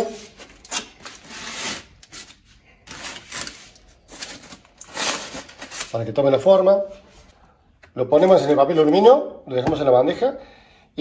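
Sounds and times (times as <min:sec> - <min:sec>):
aluminium foil crinkling: 0:00.3 - 0:06.1.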